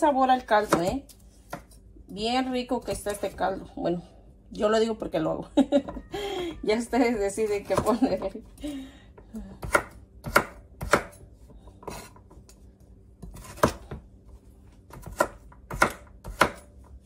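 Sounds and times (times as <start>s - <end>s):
knife chopping on wooden board: 0.6s - 1.8s, 9.6s - 12.4s, 13.2s - 14.1s, 14.9s - 17.0s.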